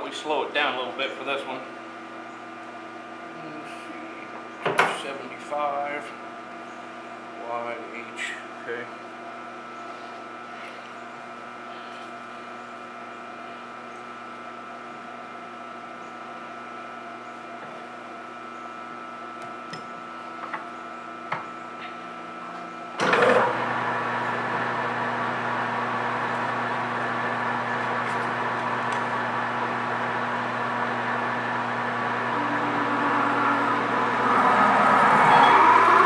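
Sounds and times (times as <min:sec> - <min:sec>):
lathe spindle running: 0:23.0 - 0:36.0
steady hum: 0:25.8 - 0:36.0.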